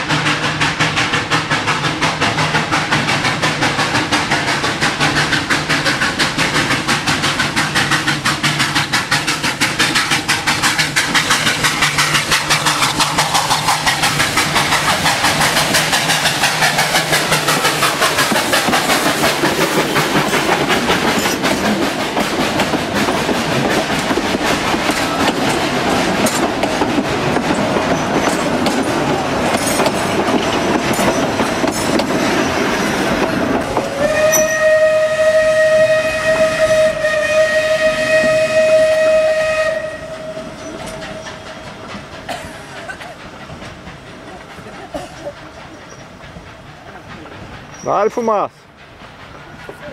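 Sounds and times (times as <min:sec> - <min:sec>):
steam locomotive exhaust chuffing: 0:00.0 - 0:49.9
train wheels clattering over rail joints: 0:00.0 - 0:49.9
steam whistle: 0:33.8 - 0:41.7.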